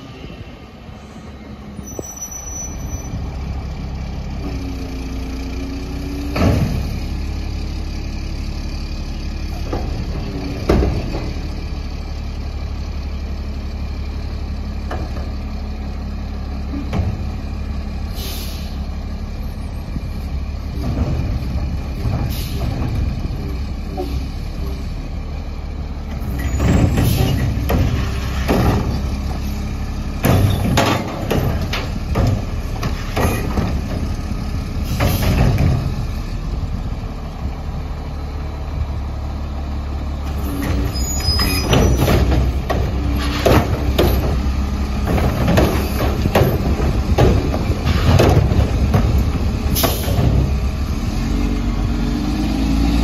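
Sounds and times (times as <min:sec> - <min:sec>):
brake squeal: 0:00.0 - 0:03.6, 0:18.0 - 0:20.2, 0:26.2 - 0:29.7, 0:32.8 - 0:33.6, 0:40.3 - 0:44.3
truck engine idling: 0:03.1 - 0:52.4
air brake hisses: 0:18.1 - 0:18.8.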